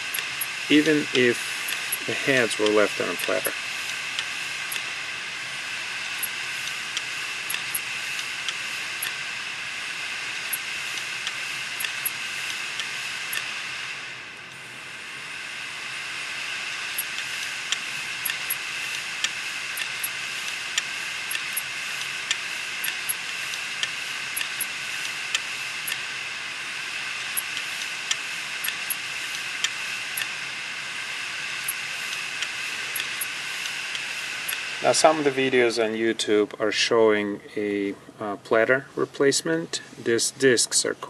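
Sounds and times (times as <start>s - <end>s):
hard drive whirring hiss: 0.0s - 41.0s
hard drive sharp ticks: 0.1s - 5.0s, 6.2s - 9.2s, 10.5s - 13.5s, 16.9s - 26.1s, 27.2s - 30.4s, 31.6s - 34.7s.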